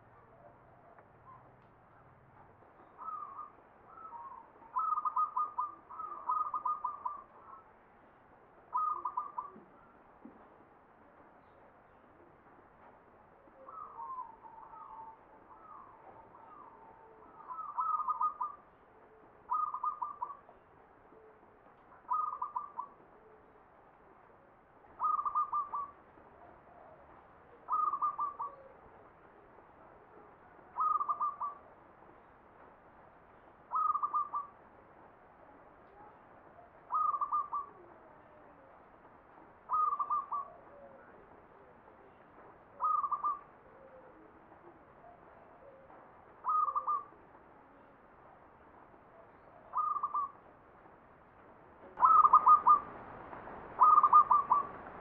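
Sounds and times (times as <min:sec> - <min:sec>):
dove cooing: 0:03.0 - 0:07.6, 0:08.7 - 0:09.8, 0:13.6 - 0:18.6, 0:19.5 - 0:20.4, 0:22.0 - 0:23.0, 0:25.0 - 0:26.0, 0:27.7 - 0:28.8, 0:30.8 - 0:31.6, 0:33.7 - 0:34.5, 0:36.9 - 0:38.7, 0:39.7 - 0:42.2, 0:42.8 - 0:47.2, 0:49.5 - 0:50.4, 0:52.0 - 0:53.0, 0:53.8 - 0:55.0.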